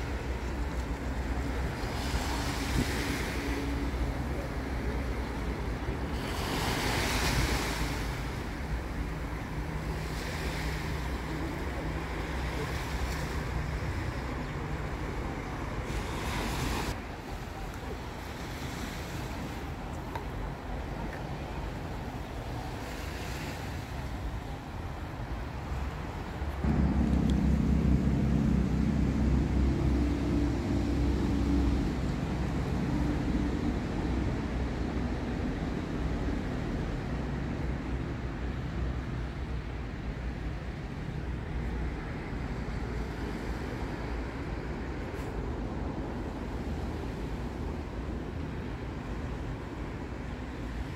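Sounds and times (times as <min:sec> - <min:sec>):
small sea waves on rocky shore: 0:00.0 - 0:24.6
wind rumbling on microphone: 0:00.0 - 0:50.9.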